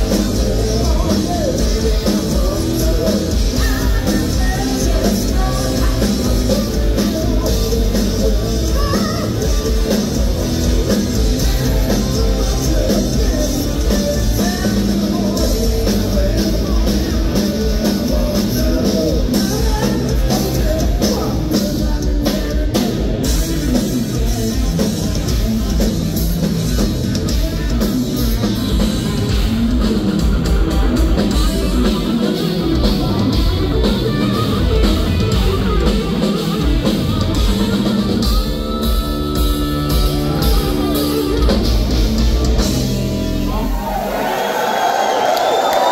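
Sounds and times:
electric bass guitar: 0.0s - 44.0s
electric guitar: 0.0s - 44.2s
drum kit with cymbals: 0.0s - 44.3s.

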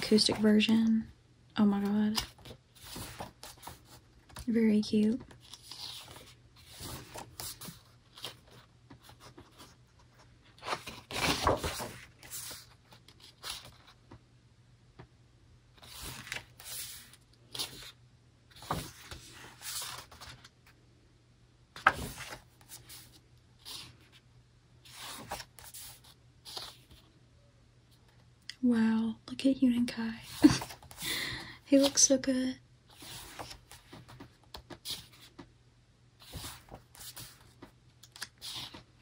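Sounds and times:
book pages turning: 1.7s - 4.5s, 5.2s - 14.2s, 15.8s - 20.5s, 21.8s - 24.2s, 24.9s - 27.0s, 30.3s - 31.0s, 32.9s - 35.5s, 36.2s - 39.0s
paper rustling: 1.8s - 4.5s, 5.2s - 14.1s, 15.8s - 17.9s, 18.5s - 20.5s, 21.8s - 24.2s, 24.9s - 27.0s, 30.2s - 32.1s, 32.9s - 35.5s, 36.2s - 38.9s.

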